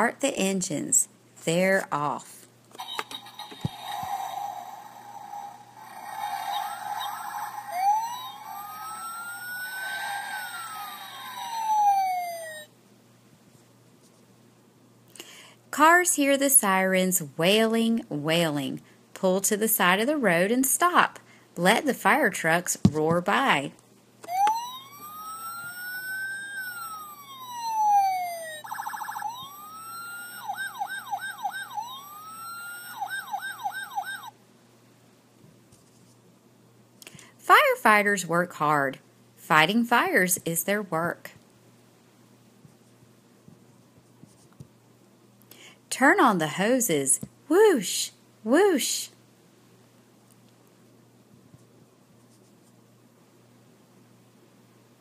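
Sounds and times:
fire engine siren wail: 0:05.2 - 0:12.7, 0:24.3 - 0:34.3.

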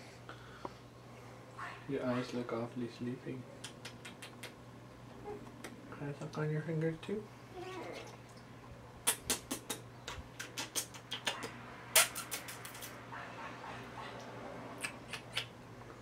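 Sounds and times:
wet lip smacks and kisses: 0:03.6 - 0:04.6, 0:09.0 - 0:13.0, 0:14.8 - 0:15.6.

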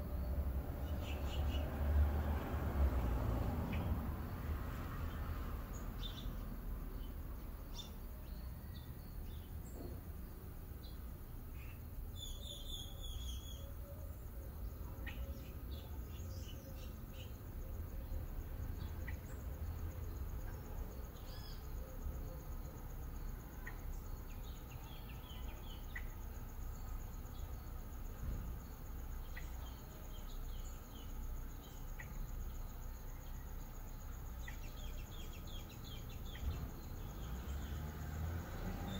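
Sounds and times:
bird chirps: 0:00.0 - 0:01.8, 0:05.1 - 0:19.4, 0:20.4 - 0:22.7, 0:23.5 - 0:27.6, 0:29.2 - 0:33.7, 0:34.3 - 0:37.9
bird chirping trill: 0:00.0 - 0:01.9, 0:10.8 - 0:19.8, 0:23.5 - 0:27.7, 0:29.2 - 0:38.0.

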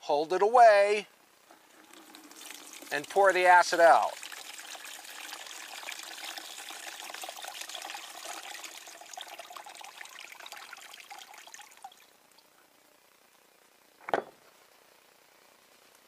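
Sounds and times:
liquid trickling into plastic tub: 0:01.6 - 0:12.1.

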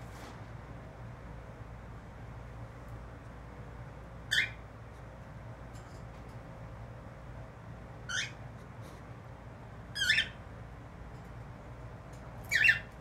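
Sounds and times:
cockatiel squawking: 0:04.3 - 0:04.6, 0:08.1 - 0:08.4, 0:10.0 - 0:10.4, 0:12.5 - 0:12.9.

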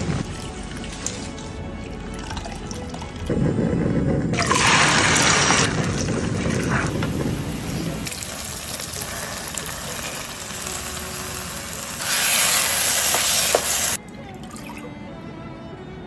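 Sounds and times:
paste sizzling in hot oil: 0:04.4 - 0:14.0.

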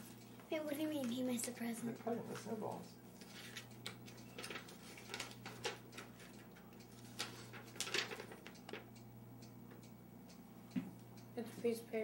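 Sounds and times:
paper rustling and crinkling: 0:07.0 - 0:08.5.

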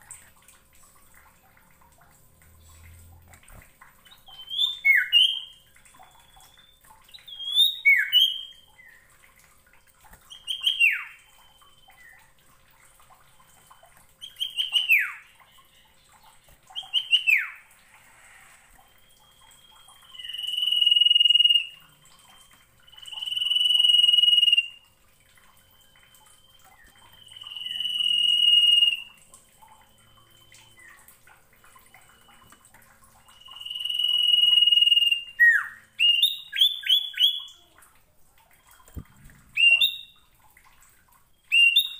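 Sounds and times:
long high bird whistles: 0:16.8 - 0:21.8, 0:22.4 - 0:24.8, 0:26.4 - 0:29.1, 0:33.3 - 0:37.3, 0:39.6 - 0:40.2.

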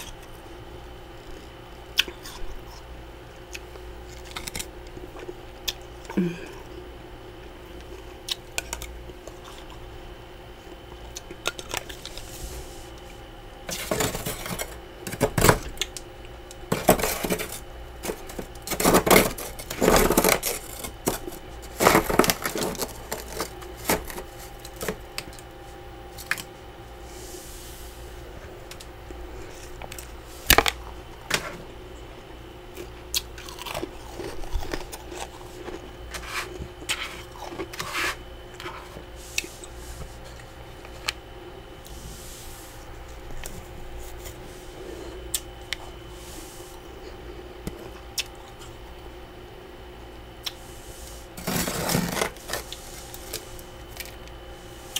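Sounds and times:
faint steady hum: 0:00.0 - 0:54.9
frost crunching: 0:13.7 - 0:25.5, 0:32.7 - 0:41.1, 0:50.4 - 0:54.9.

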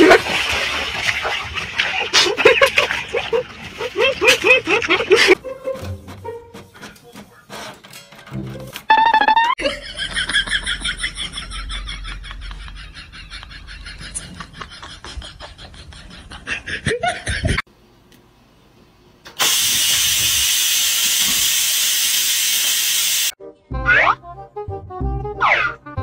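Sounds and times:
rice cooker venting steam hiss: 0:19.3 - 0:23.4
cartoon boing sound effects: 0:23.8 - 0:24.2.

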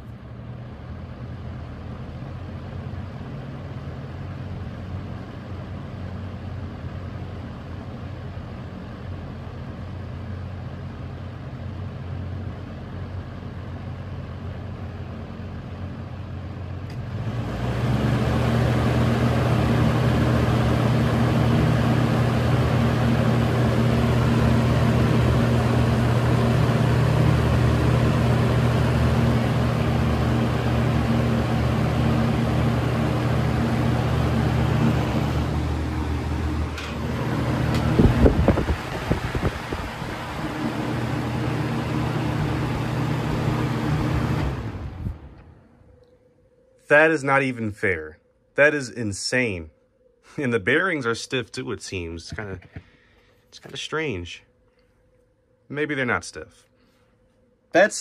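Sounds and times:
box fan humming and rushing air: 0:00.0 - 0:54.5
fan switch click: 0:36.7 - 0:38.7.

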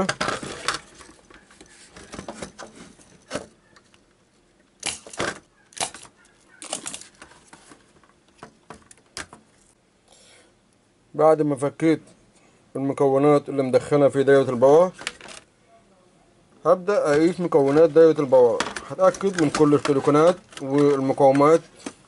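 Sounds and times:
metallic clicks and scrapes of tools: 0:04.8 - 0:07.6.

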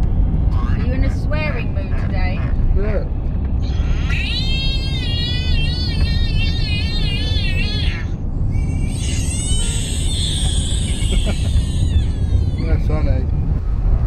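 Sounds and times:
road and engine noise in car: 0:00.0 - 0:14.0
high wavering warble: 0:03.7 - 0:09.6.

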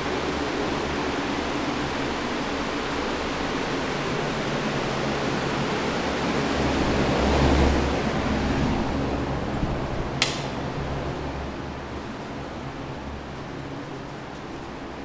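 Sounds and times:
fans rushing air: 0:00.0 - 0:15.0
sharp click: 0:10.2 - 0:10.6.

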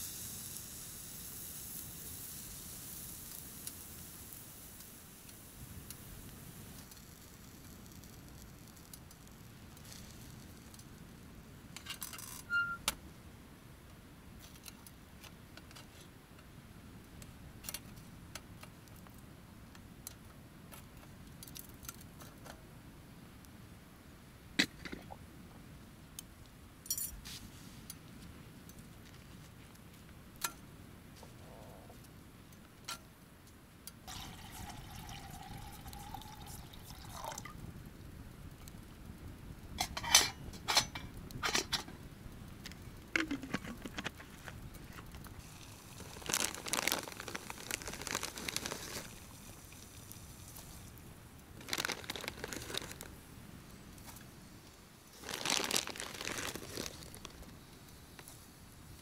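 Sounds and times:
liquid being poured: 0:34.1 - 0:37.6
camp cookware clinking: 0:39.8 - 0:41.9.

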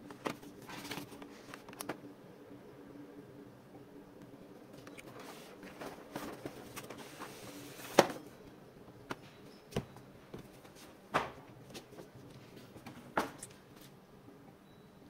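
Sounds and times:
packaging rustling: 0:00.0 - 0:02.0.

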